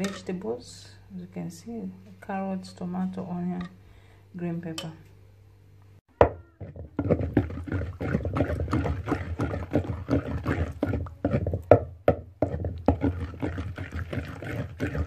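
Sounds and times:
pestle pounding in wooden mortar: 0:06.2 - 0:15.0.

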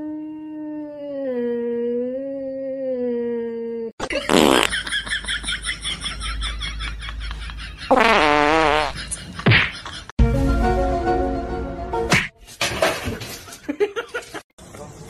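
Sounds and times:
comic fart sounds: 0:04.0 - 0:04.8, 0:07.9 - 0:09.7.

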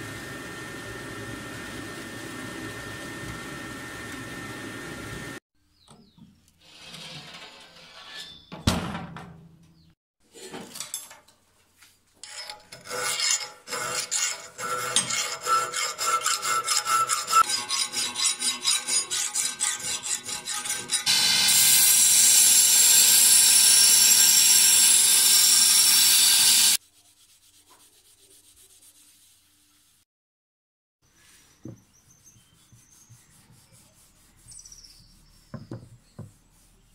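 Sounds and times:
knock: 0:35.5 - 0:36.3.

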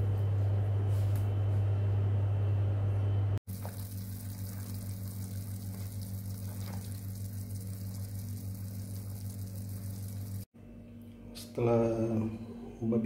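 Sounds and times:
water bubbling in pot: 0:03.5 - 0:10.5
low hum: 0:03.5 - 0:10.8.

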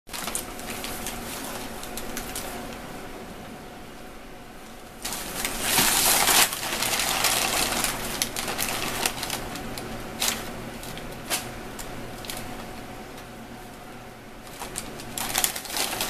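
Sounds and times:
paper crackling: 0:00.1 - 0:02.8, 0:05.0 - 0:13.3, 0:14.4 - 0:16.0
paper crinkling and rustling: 0:00.1 - 0:02.8, 0:05.0 - 0:13.3, 0:14.4 - 0:16.0.

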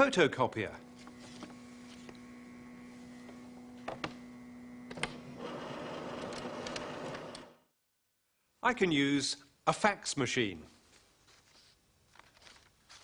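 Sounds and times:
photocopier humming: 0:00.9 - 0:07.6
photocopier whirring: 0:01.0 - 0:07.6.

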